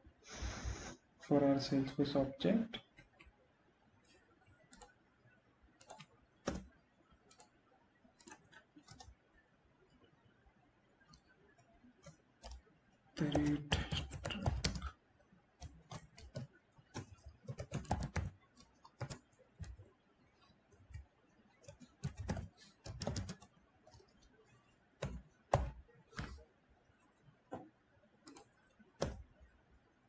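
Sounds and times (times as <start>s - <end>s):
computer keyboard typing: 4.0s - 5.1s, 5.7s - 9.4s, 11.0s - 15.0s, 15.6s - 29.6s.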